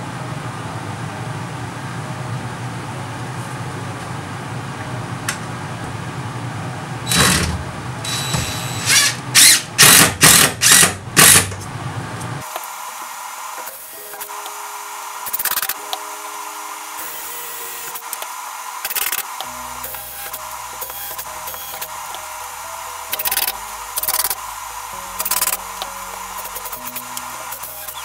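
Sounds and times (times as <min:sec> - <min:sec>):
steady background hum: 0:00.0 - 0:28.0
cordless drill driving screws: 0:07.1 - 0:11.5.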